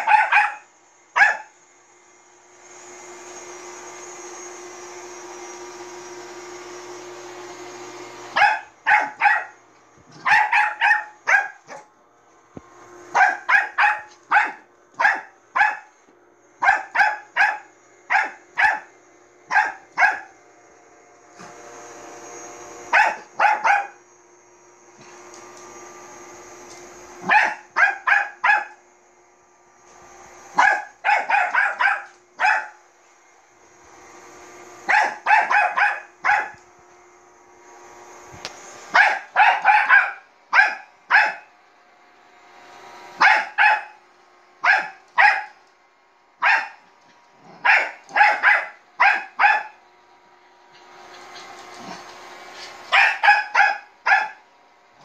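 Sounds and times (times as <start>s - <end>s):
dog barking: 0.0s - 1.5s, 8.4s - 9.6s, 10.2s - 11.9s, 13.1s - 15.9s, 16.6s - 18.9s, 19.5s - 20.3s, 22.9s - 24.0s, 27.2s - 28.8s, 30.6s - 32.8s, 34.9s - 36.6s, 38.9s - 41.5s, 43.2s - 44.0s, 44.6s - 45.6s, 46.4s - 46.8s, 47.5s - 49.8s, 52.9s - 54.4s
robot vacuum motor hum: 17.2s - 32.4s, 46.8s - 54.1s.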